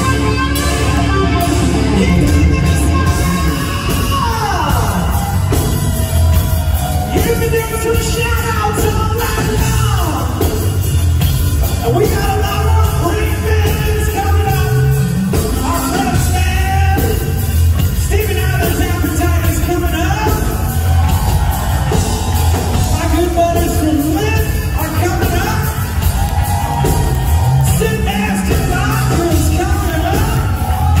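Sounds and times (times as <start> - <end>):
singer's voice: 0.0 - 6.3, 6.9 - 10.5, 11.8 - 17.4, 22.8 - 26.0, 27.4 - 31.0
live rock band: 0.0 - 31.0.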